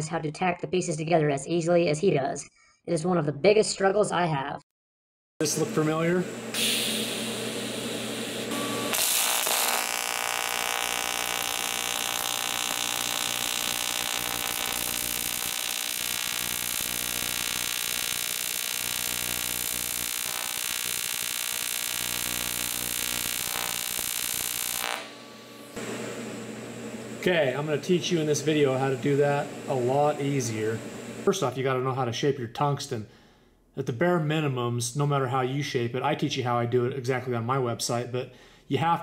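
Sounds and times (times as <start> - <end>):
welding arc buzzing with hiss: 6.5 - 31.3.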